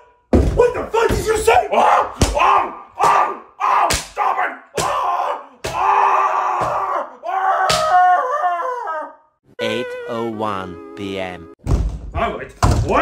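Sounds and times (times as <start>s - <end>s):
sharp smacks: 3.9s - 4.2s
wavering wail: 4.9s - 11.6s.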